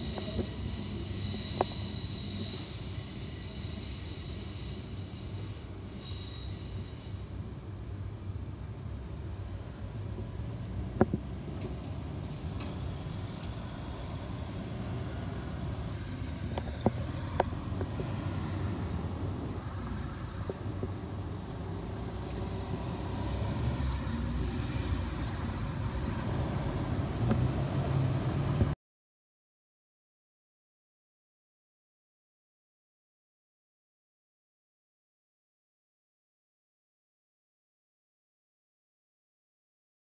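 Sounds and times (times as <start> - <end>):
cars driving past: 10.2 - 28.8.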